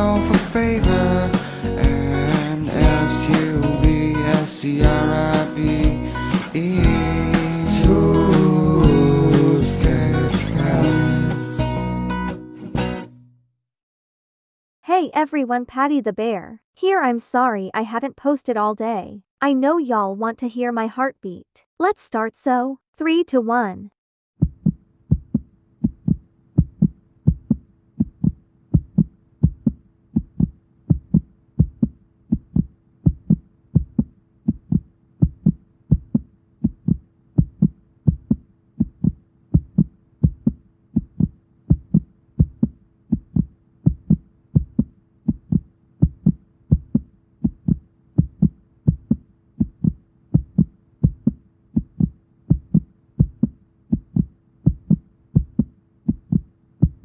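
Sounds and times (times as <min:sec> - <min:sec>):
fast heartbeat thumps: 0:24.4 - 0:57.0.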